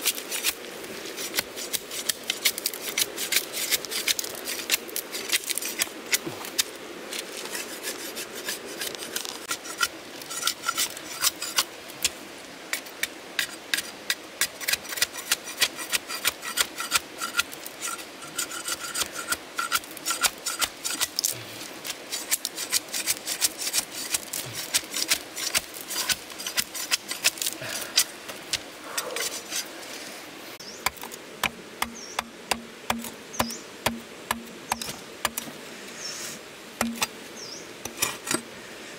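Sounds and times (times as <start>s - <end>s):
knife scraping bamboo: 0.0s - 30.1s, 36.8s - 37.2s.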